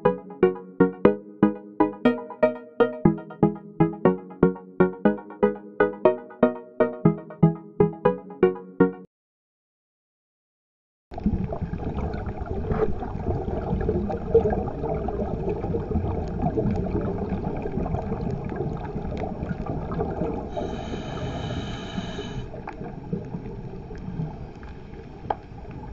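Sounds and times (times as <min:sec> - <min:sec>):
underwater rumble and gurgle: 0:11.1 - 0:25.9
small underwater clicks: 0:22.5 - 0:25.9.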